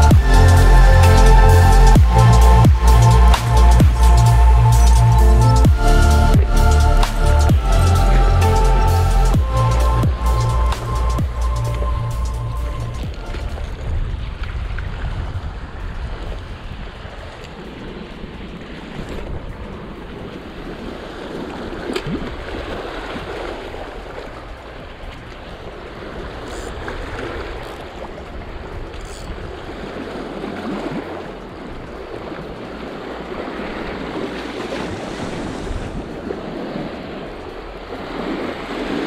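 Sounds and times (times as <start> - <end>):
wind buffeting microphone: 0.0 - 39.0
small waves washing over rocks: 13.2 - 39.0.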